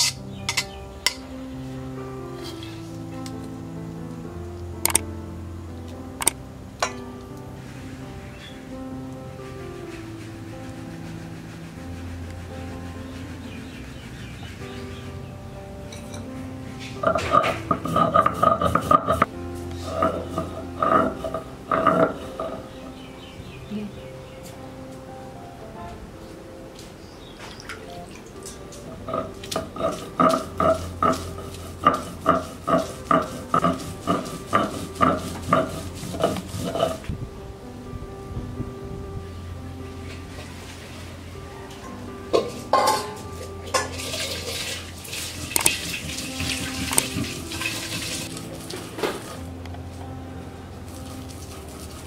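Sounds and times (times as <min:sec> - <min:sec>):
background music with held notes: 0:00.0 - 0:52.0
stone roller knocking and grinding: 0:17.0 - 0:22.6, 0:29.1 - 0:37.1, 0:43.8 - 0:48.3
stone rasping scrapes: 0:29.6 - 0:37.0.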